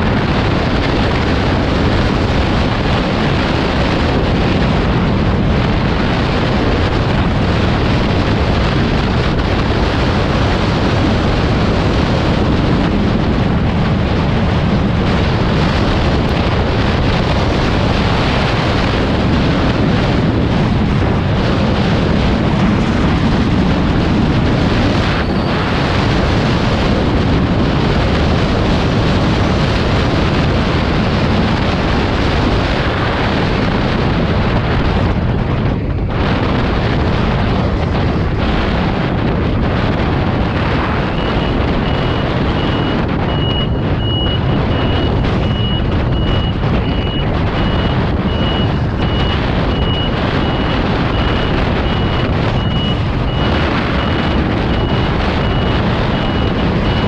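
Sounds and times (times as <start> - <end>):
road and engine noise: 0.0 - 57.0
wind rush: 0.0 - 57.0
high-pitched beep: 41.1 - 57.0.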